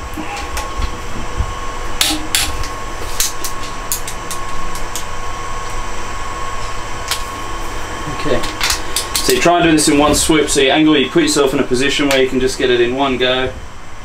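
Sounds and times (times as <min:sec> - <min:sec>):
workshop hum with high tone: 0:00.0 - 0:14.0.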